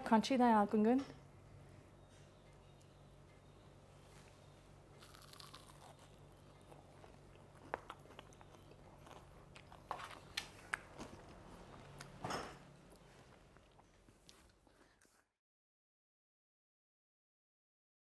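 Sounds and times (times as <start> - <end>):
crunching and chewing fried snack: 4.9 - 12.1.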